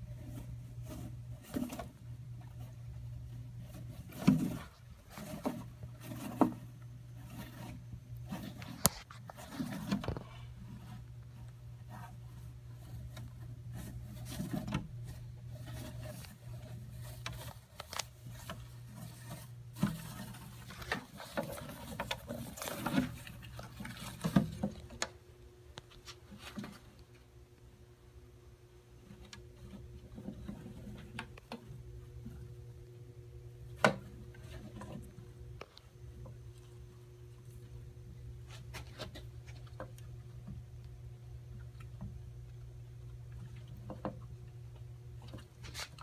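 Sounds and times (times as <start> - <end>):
scratchy scrapes: 0.0 - 24.9, 45.3 - 46.0
steady low hum: 0.0 - 46.0.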